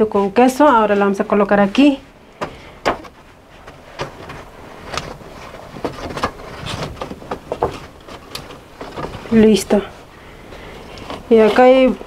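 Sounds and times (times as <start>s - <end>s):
baking tray scraping on wooden rack: 3.6s - 9.9s.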